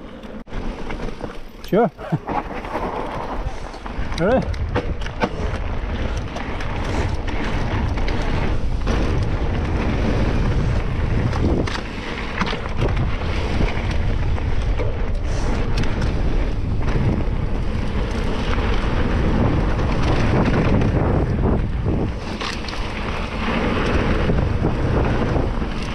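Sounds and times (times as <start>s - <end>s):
bike clicking and rattling: 0.0s - 25.9s
bike tyres rumbling on rough trail: 0.0s - 25.9s
wind rushing over microphone: 1.7s - 25.9s.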